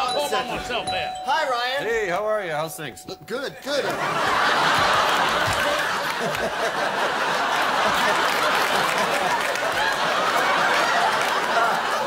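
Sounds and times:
studio audience laughing: 3.7 - 12.0.

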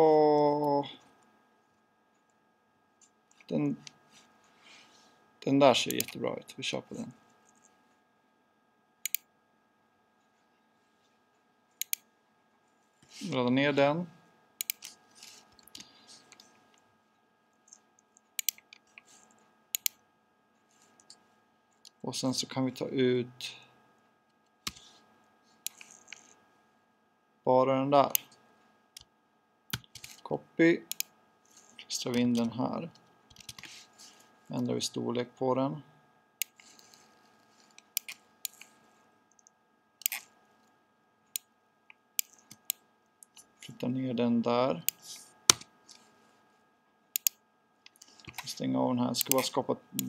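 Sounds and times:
faint steady hum: 0.0 - 50.0
computer mouse clicking: 9.0 - 9.3, 11.8 - 12.1, 14.6 - 15.0, 18.4 - 20.0, 25.6 - 26.3, 30.9 - 32.2, 42.2 - 43.5, 47.2 - 48.5, 49.2 - 50.0.

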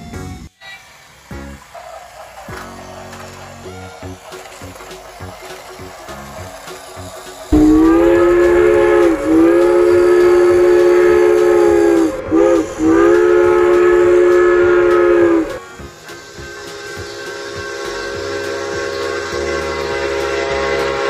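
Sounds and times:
train horn blasts: 7.5 - 21.0.

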